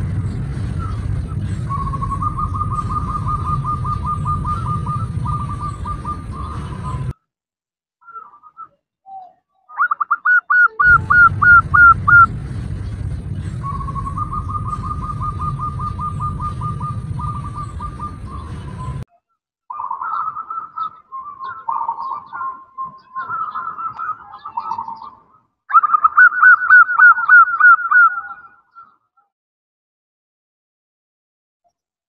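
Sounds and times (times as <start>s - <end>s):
dove calling: 0.0s - 7.1s, 9.7s - 19.0s, 19.7s - 28.9s
low rumbling noise: 0.0s - 7.2s, 10.8s - 19.1s.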